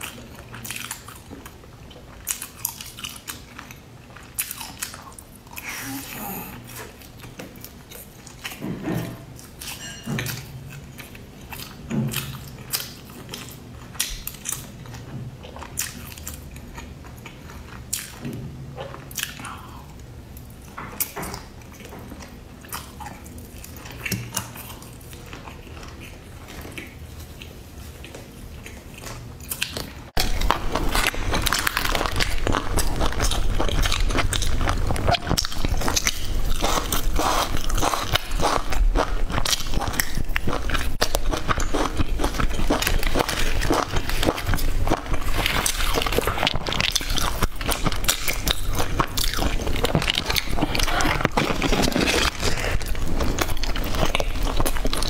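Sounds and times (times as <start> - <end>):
chewing crunchy food: 0.0 - 55.0.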